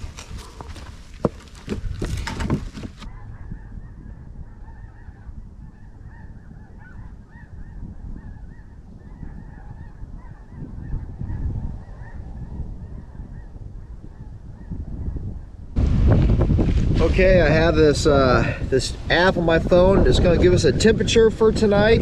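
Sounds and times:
wind rumbling on microphone: 0.0 - 22.0.

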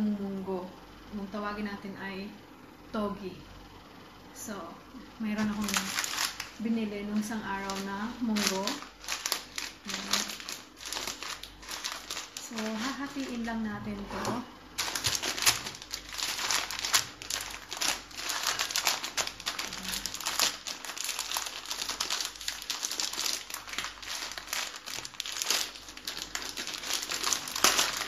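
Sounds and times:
plastic packet crinkling: 5.4 - 13.6, 14.7 - 28.0.

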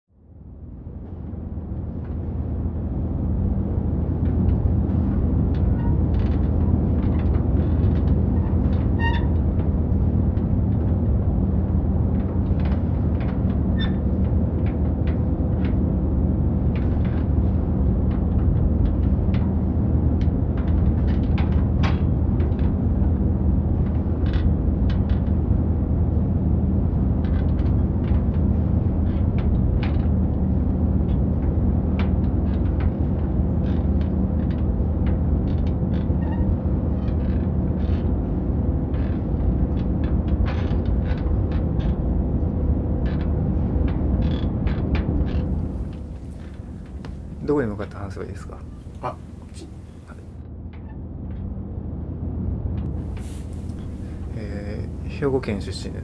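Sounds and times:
light rattles and clicks: 4.2 - 16.0, 43.0 - 50.3
vehicle cabin rumble: 45.0 - 50.4, 52.8 - 56.0.

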